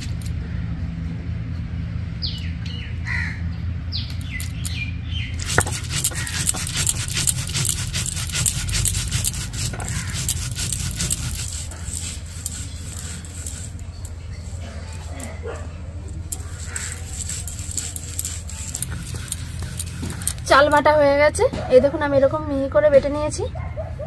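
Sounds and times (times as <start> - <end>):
stone roller scraping rice: 5.4 - 15.5, 16.1 - 20.9.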